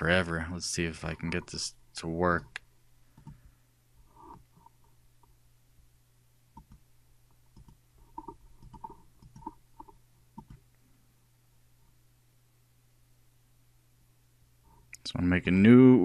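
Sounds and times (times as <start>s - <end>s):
faint low hum: 0.0s - 16.0s
soft computer mouse clicks: 3.2s - 3.5s, 6.5s - 6.9s, 7.5s - 10.7s.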